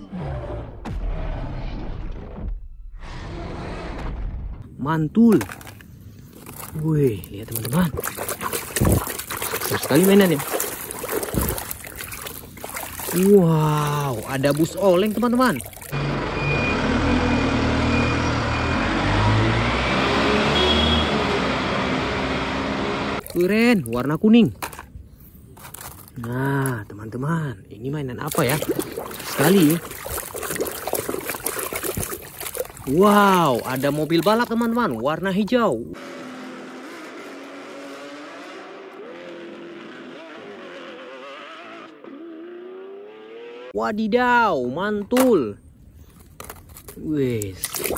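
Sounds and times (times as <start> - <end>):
street traffic noise: 5.3 - 23.5, 28.6 - 43.8
bus engine driving away: 16.0 - 23.2.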